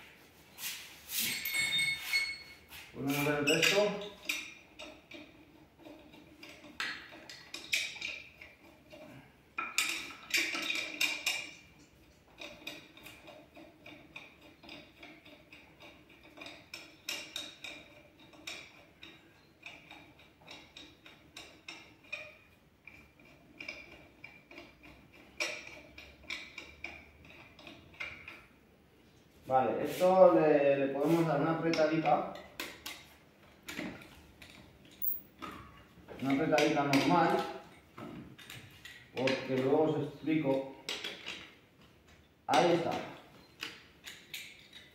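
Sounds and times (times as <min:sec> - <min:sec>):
wheel bolts clicking metal: 0:03.4 - 0:28.5.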